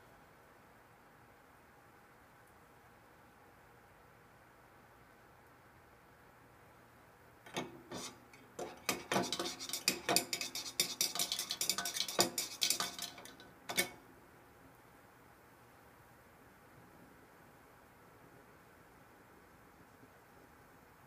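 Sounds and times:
rod clinking inside a can: 8.6s - 14.0s.

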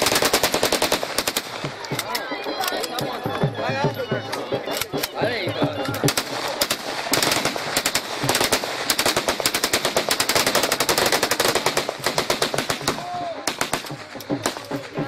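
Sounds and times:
rifle gunfire: 0.0s - 1.8s, 6.1s - 14.8s.

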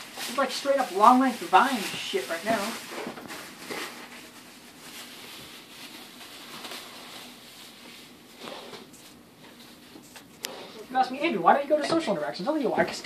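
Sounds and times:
plastic bags rustling and crinkling: 0.0s - 13.0s.

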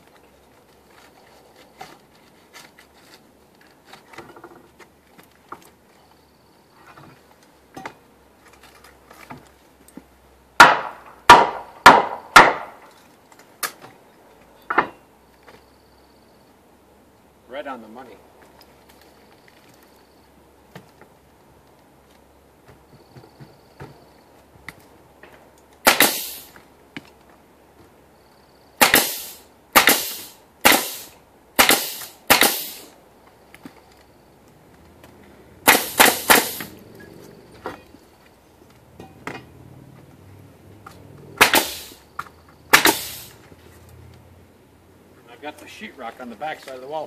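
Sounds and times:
nail gun firing into wood: 10.6s - 12.8s, 25.8s - 26.6s, 28.8s - 32.9s, 35.6s - 36.7s, 41.4s - 42.0s, 42.7s - 43.3s.

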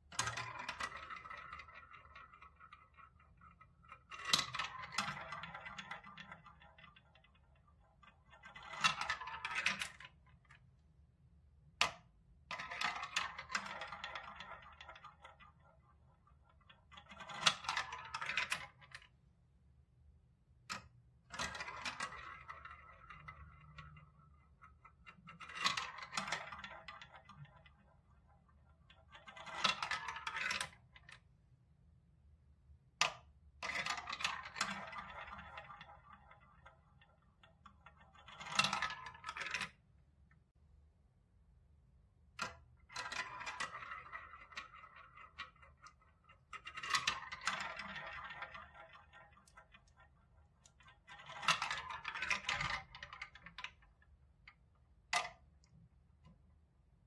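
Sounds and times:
balls rattling through marble run: 0.0s - 10.8s, 11.6s - 19.3s, 20.5s - 31.4s, 33.0s - 40.4s, 41.5s - 57.0s.

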